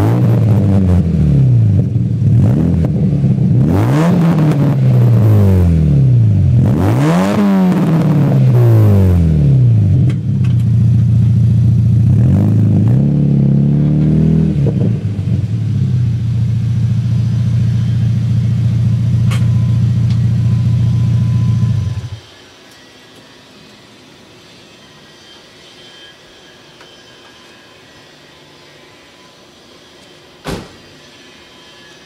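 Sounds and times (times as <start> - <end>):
car engine revving: 0.0 - 22.2.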